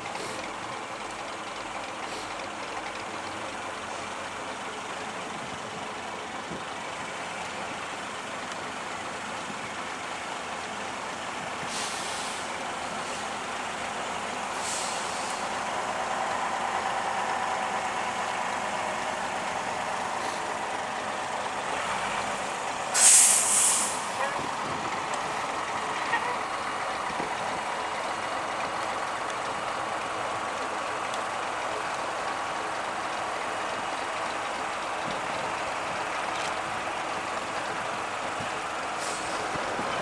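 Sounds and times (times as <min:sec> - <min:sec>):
bus engine passing: 0:00.1 - 0:40.0
air hissing: 0:11.7 - 0:13.4, 0:14.5 - 0:15.5, 0:22.9 - 0:24.2, 0:39.0 - 0:39.5.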